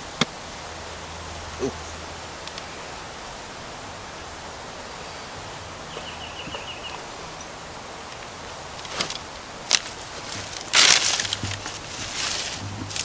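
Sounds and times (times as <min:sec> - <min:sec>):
high chirps: 0:05.9 - 0:07.4.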